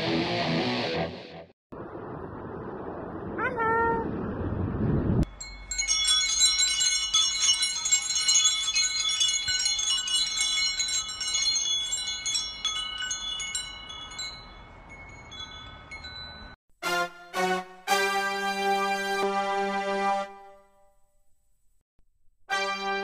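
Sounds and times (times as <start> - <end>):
metal chimes jingling: 5.3 - 16.6.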